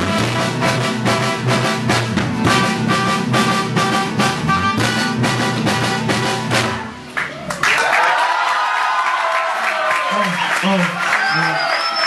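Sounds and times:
live band playing up-tempo song: 0:00.0 - 0:07.4
crowd cheering and whistling: 0:07.0 - 0:12.0
crowd applause: 0:07.1 - 0:12.0.

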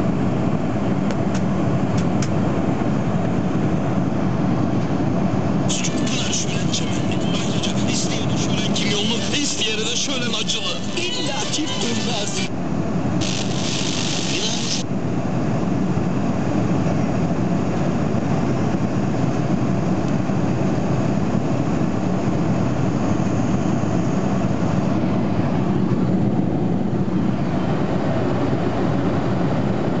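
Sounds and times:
airliner cabin roar: 0:00.0 - 0:30.0
high hiss: 0:13.2 - 0:14.8.

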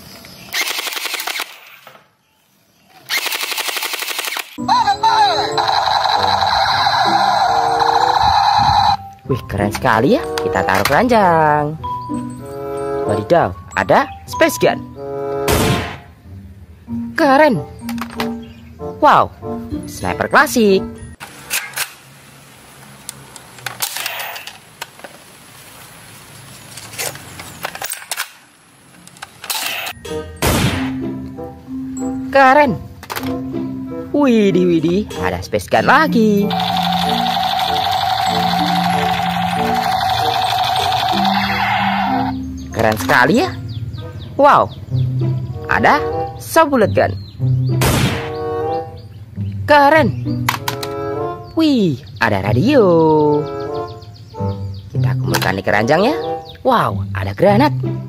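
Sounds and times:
gel blaster automatic fire: 0:00.5 - 0:01.8, 0:03.1 - 0:04.6, 0:36.5 - 0:42.3
electronic toy gun sound effects: 0:03.0 - 0:09.0, 0:36.5 - 0:42.3.

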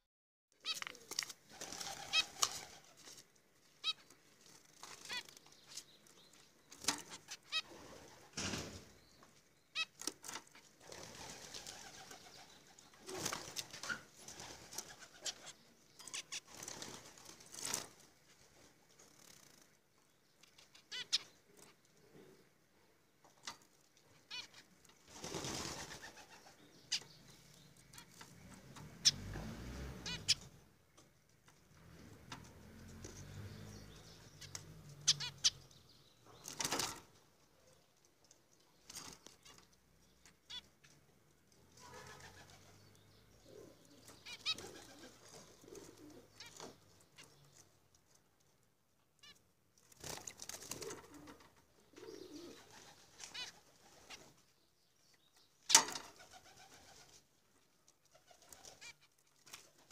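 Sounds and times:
bird wing flutters: 0:00.7 - 0:03.1, 0:10.8 - 0:12.4, 0:25.1 - 0:26.5.

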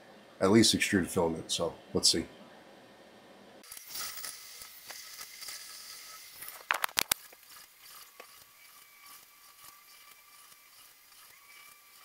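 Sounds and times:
printer motors whining: 0:03.7 - 0:12.0.

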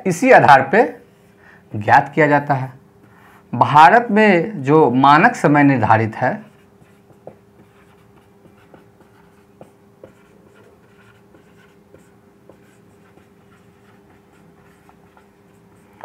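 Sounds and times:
steady low hum: 0:00.0 - 0:16.0
marker scratching on whiteboard: 0:06.1 - 0:16.0
marker taps: 0:06.8 - 0:15.3.

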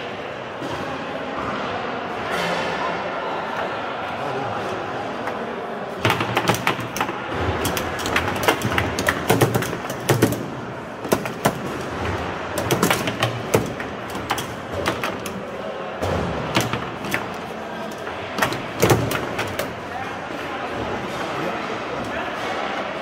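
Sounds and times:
foosball ball knocking: 0:06.0 - 0:19.8.

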